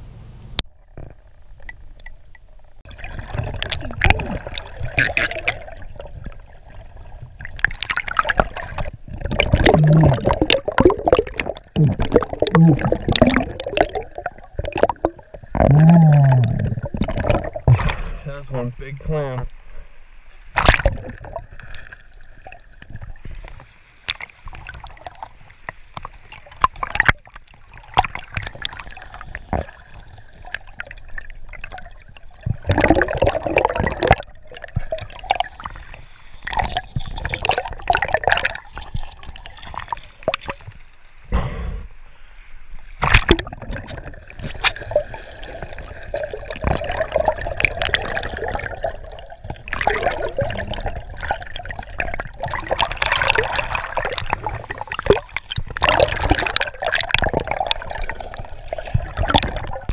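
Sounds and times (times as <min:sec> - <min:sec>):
underwater clicks and knocks: 0:00.8 - 0:02.7
underwater gurgling current: 0:00.8 - 0:59.9.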